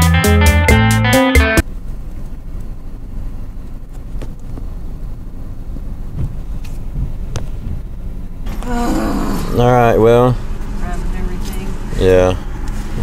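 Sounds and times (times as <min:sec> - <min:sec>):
guitar music: 0:00.0 - 0:01.6
car engine and road rumble: 0:01.1 - 0:13.0.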